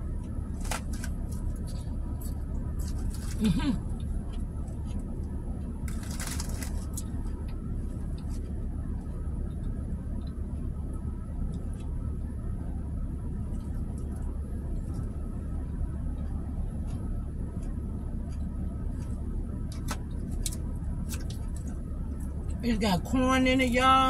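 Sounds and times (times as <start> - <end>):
car engine idling: 0.0 - 24.0
crunchy chewing: 0.5 - 8.7.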